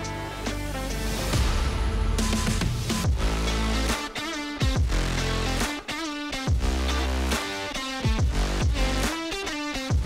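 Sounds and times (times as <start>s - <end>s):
music with sliding bass notes: 0.0s - 10.0s.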